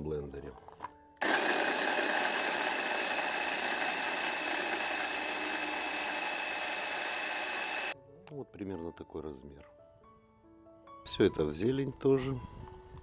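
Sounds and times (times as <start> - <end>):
mini chopper motor whining: 1.2 - 8.0.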